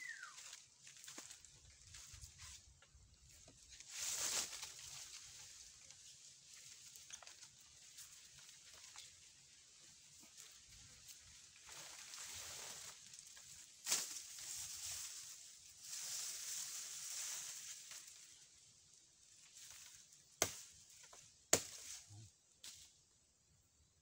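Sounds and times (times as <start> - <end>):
rustling hiss: 3.6 - 20.2
knife chopping into palm trunk: 20.4 - 22.0.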